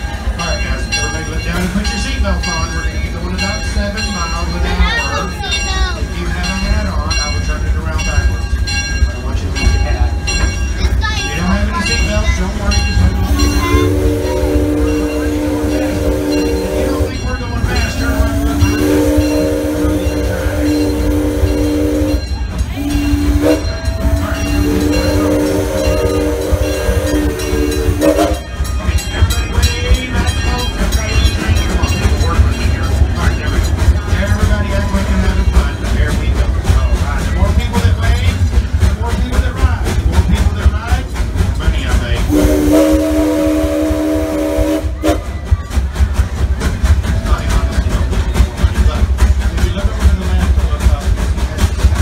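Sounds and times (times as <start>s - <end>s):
steam locomotive whistle: 13.3s - 17.2s, 18.0s - 28.5s, 42.3s - 45.4s.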